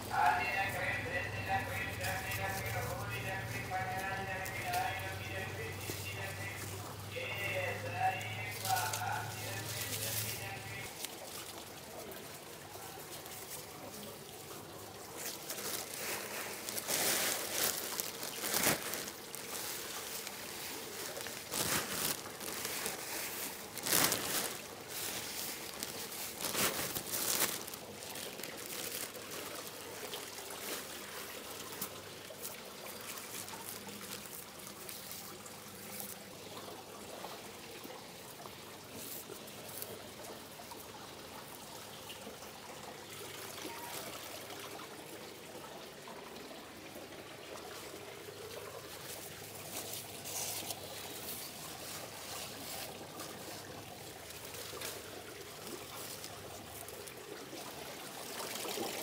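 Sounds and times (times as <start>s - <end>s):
water trickling and splashing: 0.0s - 59.0s.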